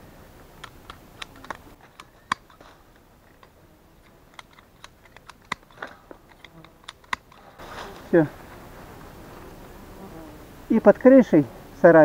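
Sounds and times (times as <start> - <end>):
pruning shears snipping twigs: 0.5 - 8.4.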